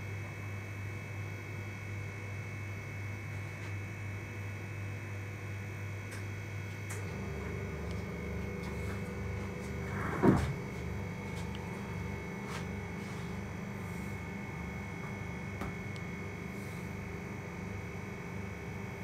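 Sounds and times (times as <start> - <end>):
low hum: 7.0 - 19.0.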